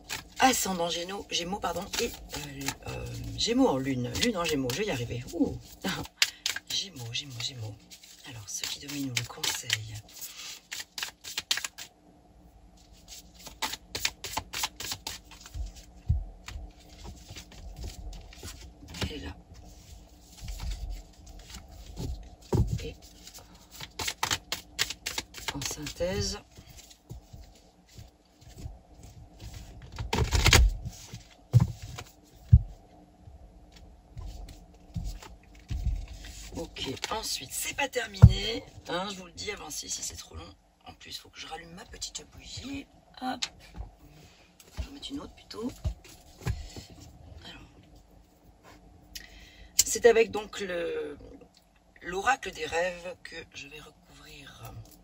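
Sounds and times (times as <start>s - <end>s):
cards being shuffled: 0.0s - 0.6s, 1.7s - 3.4s, 4.0s - 11.9s, 12.8s - 32.6s, 33.8s - 37.3s.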